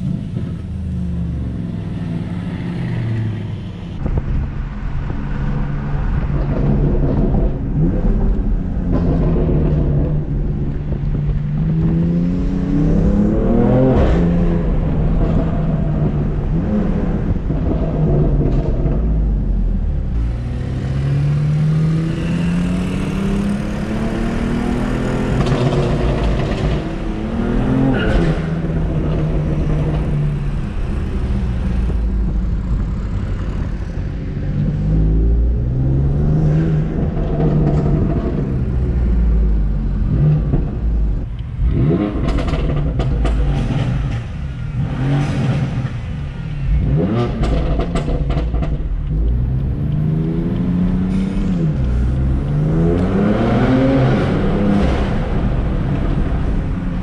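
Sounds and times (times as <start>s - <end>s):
exhaust cracks: 23.4s - 57.0s
car engine revving hard: 41.6s - 57.0s.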